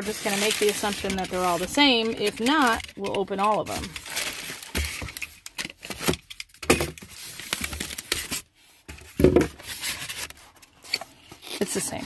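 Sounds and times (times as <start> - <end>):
polystyrene foam scraping and creaking: 0.0 - 6.0, 9.5 - 12.0.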